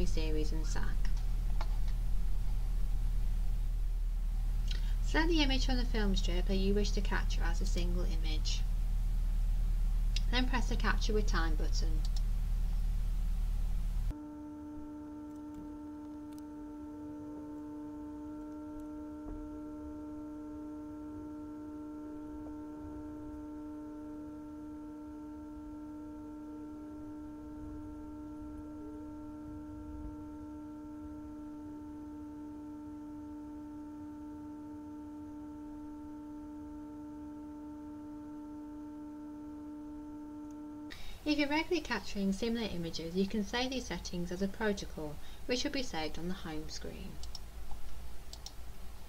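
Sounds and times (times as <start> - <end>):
steady multi-tone hum: 0.0 - 49.0
faint click: 12.0 - 12.3, 47.2 - 48.6.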